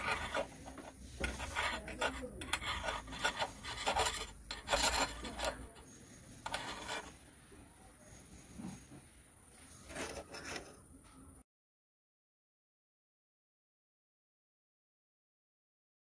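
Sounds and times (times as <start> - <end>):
spatula scraping metal pan: 0.0 - 7.2, 9.8 - 10.9.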